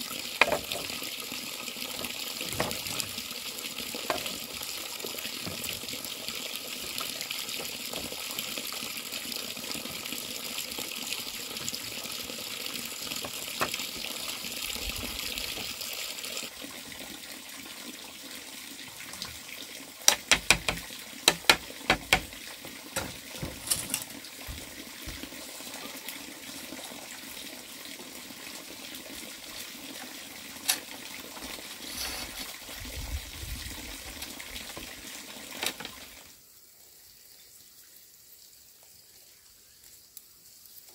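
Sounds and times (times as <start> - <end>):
flowing water rushing: 0.0 - 36.4
sharp knocks: 20.1 - 22.3.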